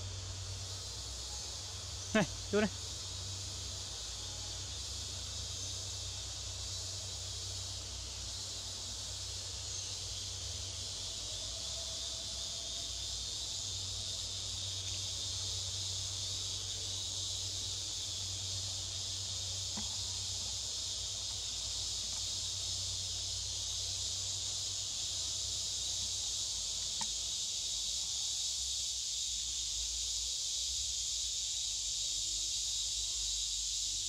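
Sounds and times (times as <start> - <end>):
high-pitched insect chorus: 0.0 - 34.0
faint click: 19.7 - 20.0, 26.9 - 27.2.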